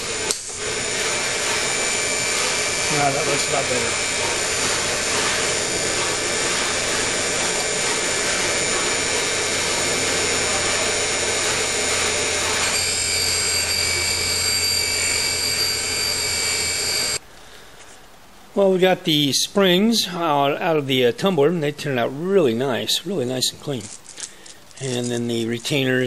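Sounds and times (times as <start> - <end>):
grinding machine motor hum: 0.0 - 17.2
grinding wheel hiss and whine: 0.0 - 17.2.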